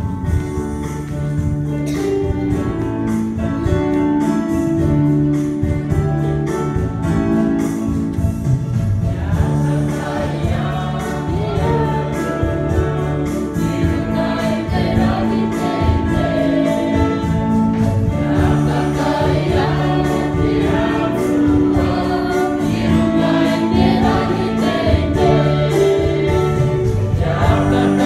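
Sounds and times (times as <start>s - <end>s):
guitar accompaniment: 0.0s - 28.0s
group singing a hymn: 7.8s - 28.0s.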